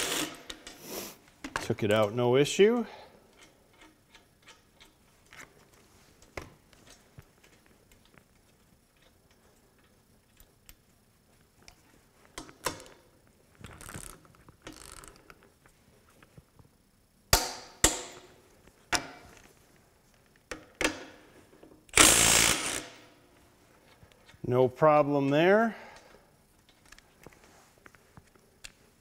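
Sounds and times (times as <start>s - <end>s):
torque wrench ratcheting: 0.0s - 0.8s, 13.8s - 15.3s, 21.9s - 23.0s.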